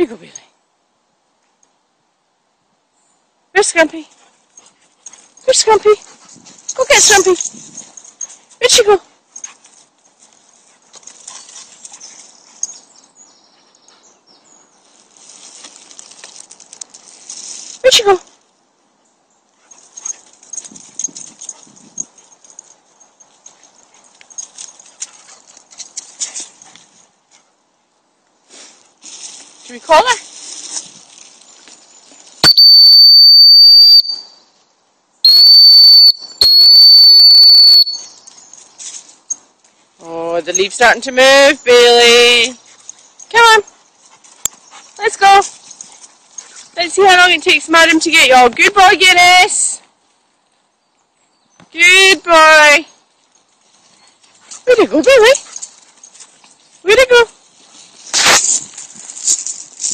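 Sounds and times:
light rustles: 4.1s - 18.6s, 19.5s - 27.6s, 28.3s - 32.4s, 38.0s - 40.8s, 42.6s - 46.8s, 53.0s - 59.9s
small bird singing: 11.3s - 15.0s
footsteps on leaves: 14.8s - 17.8s, 28.4s - 32.4s, 55.4s - 59.9s
dog whistle blasts: 32.4s - 34.4s, 35.2s - 38.2s.

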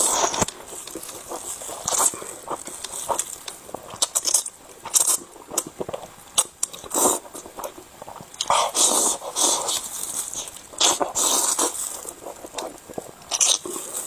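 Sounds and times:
wet chewing: 0.0s - 14.0s
noodle slurping: 6.7s - 14.0s.

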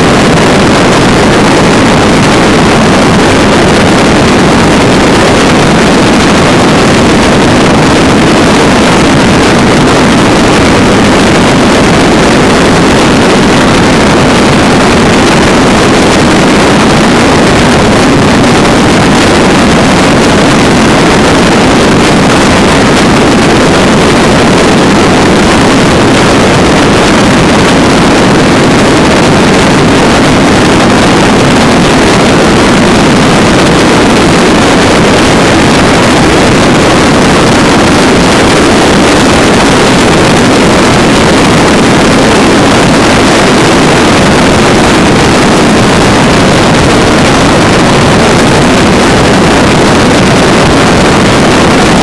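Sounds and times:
wind and road noise: 0.0s - 52.0s.

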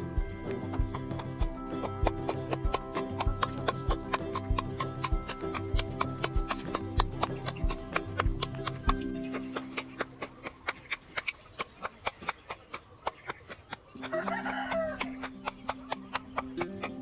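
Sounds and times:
music with ticking beat: 0.0s - 11.2s, 13.7s - 17.0s
rooster crowing: 14.0s - 15.2s.

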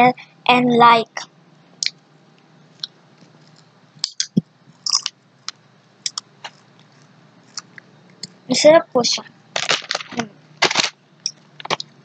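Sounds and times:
crisp crunching: 9.6s - 11.0s.

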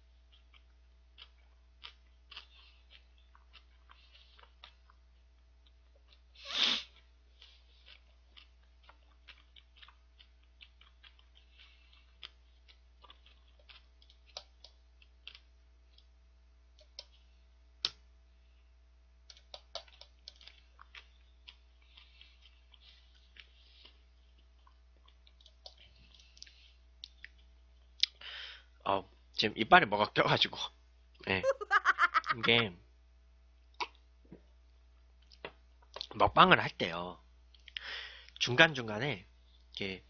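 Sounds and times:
mouth chewing clicks and smacks: 0.3s - 6.3s, 7.4s - 16.1s, 16.8s - 17.2s, 19.3s - 28.2s, 35.2s - 36.2s, 37.5s - 38.4s
short hissing burst: 6.4s - 6.9s.

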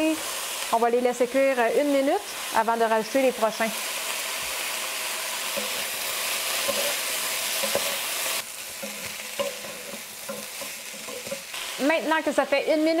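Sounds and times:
vegetables sizzling in a wok: 0.0s - 13.0s
wooden spatula scraping a pan: 5.4s - 11.7s.

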